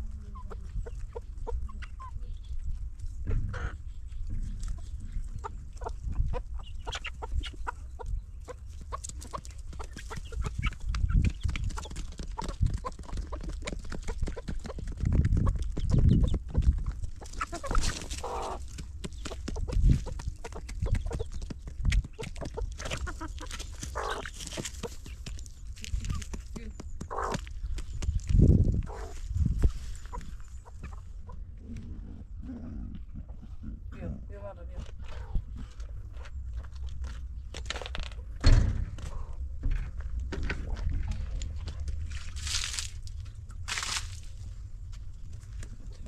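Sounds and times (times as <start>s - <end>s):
chickens clucking: 0.0s - 32.3s.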